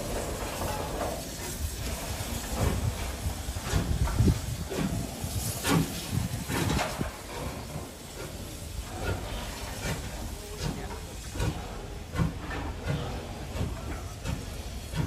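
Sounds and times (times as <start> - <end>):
steam hiss: 0.0 - 15.0
steam locomotive exhaust chuffs: 0.0 - 15.0.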